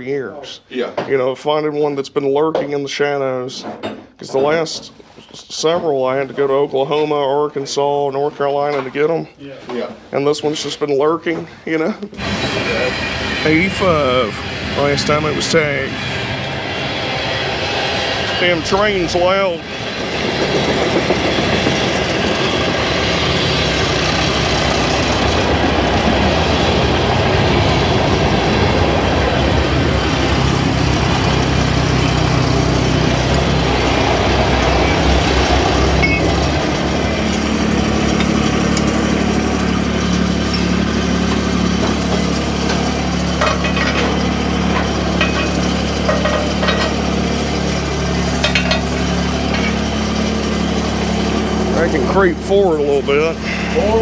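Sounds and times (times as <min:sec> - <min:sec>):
train rumbling and clattering: 0:12.2 - 0:40.6, 0:41.2 - 0:52.2
vehicle engine idling: 0:12.2 - 0:54.0.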